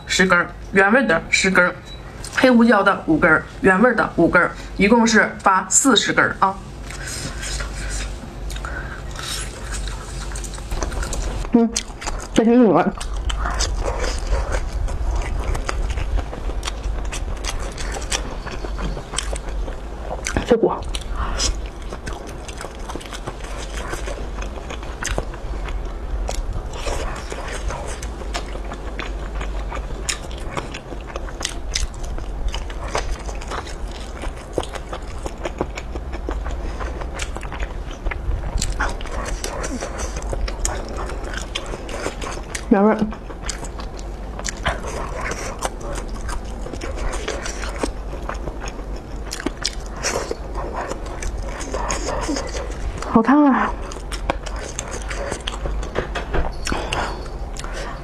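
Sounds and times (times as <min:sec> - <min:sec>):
soft chewing clicks: 0:06.8 - 0:58.0
crunchy sausage bites: 0:13.0 - 0:53.1.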